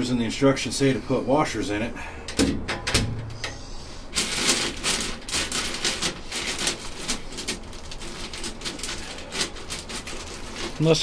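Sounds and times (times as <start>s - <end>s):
small metal parts clattering: 4.1s - 11.0s.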